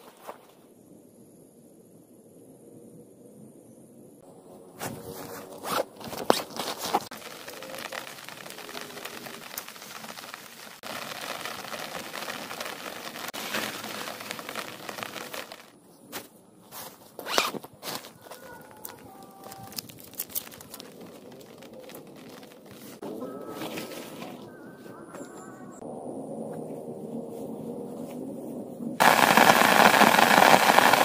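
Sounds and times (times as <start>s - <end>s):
tent fabric rustling and scraping: 4.8s - 18.8s.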